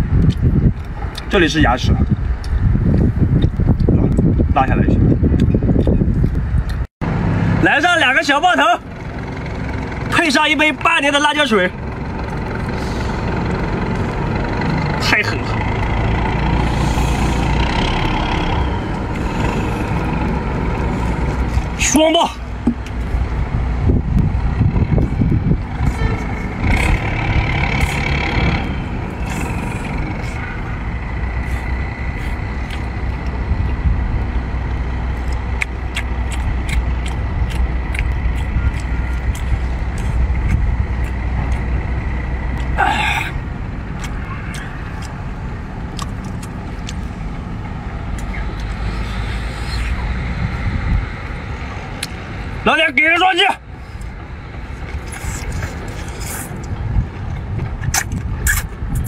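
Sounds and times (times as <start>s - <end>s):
low rumble: 0.0s - 7.7s, 8.8s - 52.8s, 53.6s - 59.0s
man chewing and slurping: 16.1s - 21.8s, 25.8s - 33.8s, 35.1s - 41.8s, 42.6s - 50.6s, 53.8s - 59.0s.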